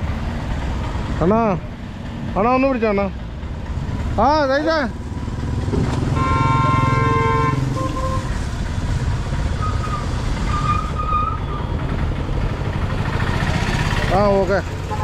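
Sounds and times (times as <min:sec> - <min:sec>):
passing traffic engine noise: 0:00.0 - 0:15.0
vehicle horn: 0:06.1 - 0:08.4.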